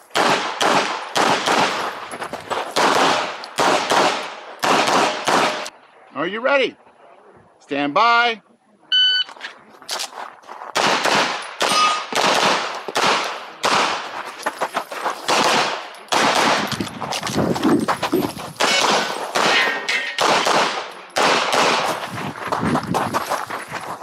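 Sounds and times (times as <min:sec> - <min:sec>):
rapid pistol shots: 0:00.1 - 0:01.9, 0:02.8 - 0:05.7, 0:10.8 - 0:14.2, 0:15.2 - 0:16.8, 0:18.6 - 0:22.0.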